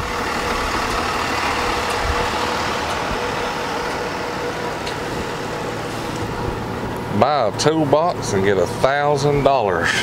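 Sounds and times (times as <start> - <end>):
vehicle engine idling: 0.0 - 10.0.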